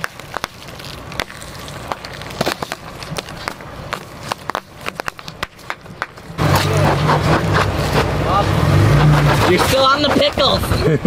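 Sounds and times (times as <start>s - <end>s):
tyre crushing plastic tubes: 0.0s - 6.7s
sharp pops and crackles: 0.0s - 8.2s.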